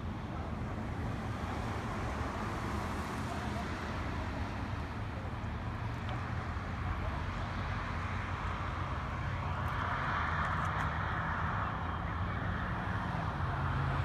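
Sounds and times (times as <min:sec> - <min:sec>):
noisy rush: 0:00.0 - 0:14.0.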